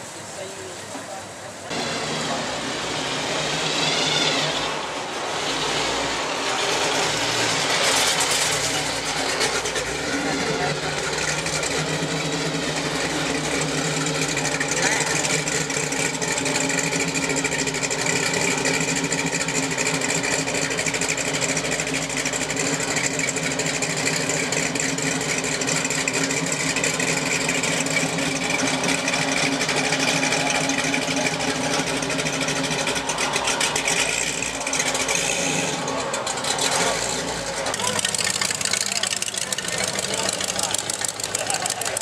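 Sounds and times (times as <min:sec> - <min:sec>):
car engine idling: 0:00.0 - 0:42.0.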